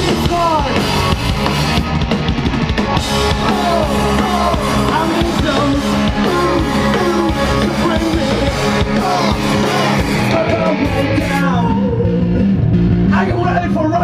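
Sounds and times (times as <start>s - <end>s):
rock band playing loud: 0.0s - 14.0s
person singing: 3.2s - 12.4s.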